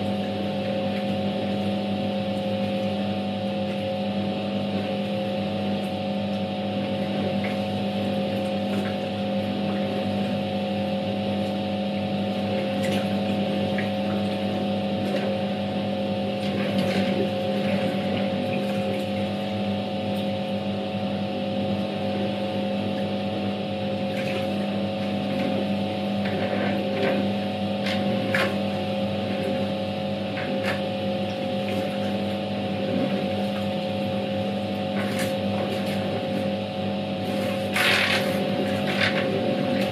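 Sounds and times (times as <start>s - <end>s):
washing machine motor hum: 0.0s - 39.9s
water and laundry swishing: 6.8s - 19.6s, 23.9s - 39.9s.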